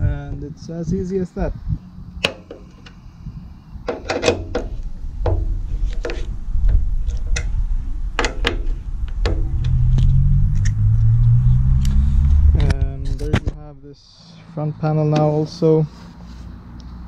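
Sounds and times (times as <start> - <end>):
plastic panel clicks and knocks: 3.9 - 6.2
low rumble: 4.8 - 14.2.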